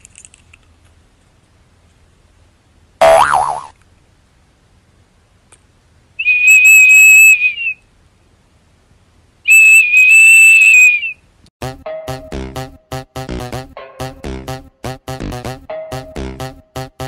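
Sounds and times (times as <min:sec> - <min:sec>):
shrill toy whistle: 0:06.2 - 0:07.8, 0:09.5 - 0:11.2.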